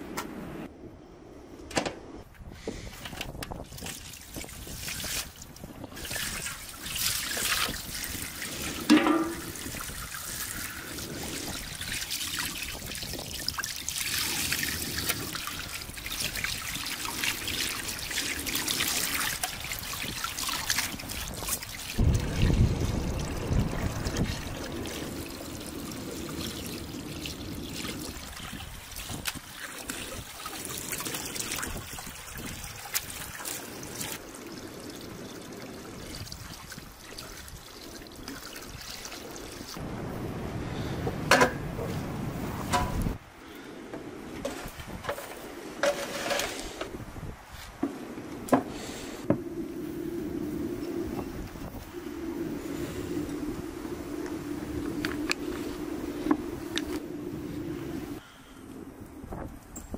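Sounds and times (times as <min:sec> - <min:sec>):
hose water running into metal basin: 0:03.6 - 0:39.8
water splashing: 0:03.6 - 0:39.8.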